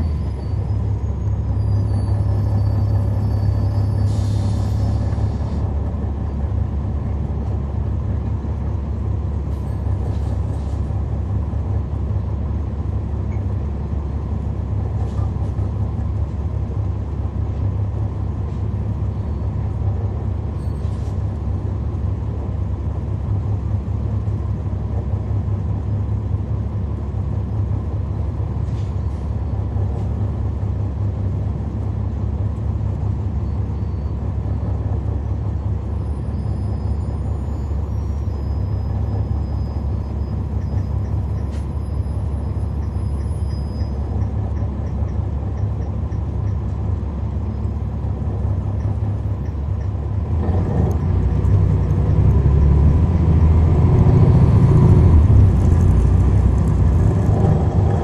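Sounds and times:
diesel bus engine drone: 0.0s - 58.0s
short air hisses: 4.0s - 5.6s.

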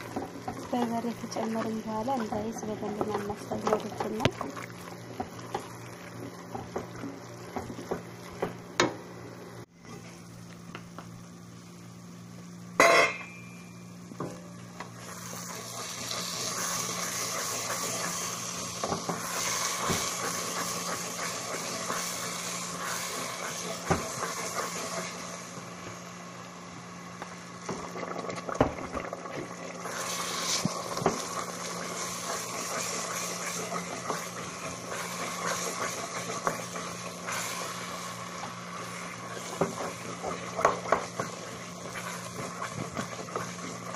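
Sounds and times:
paste sizzling: 15.0s - 25.5s, 29.7s - 43.9s.

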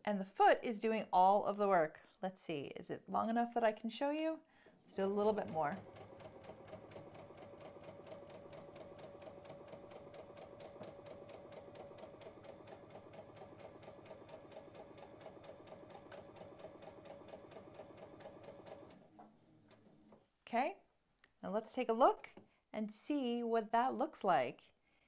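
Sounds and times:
sewing machine motor hum: 5.2s - 19.1s.

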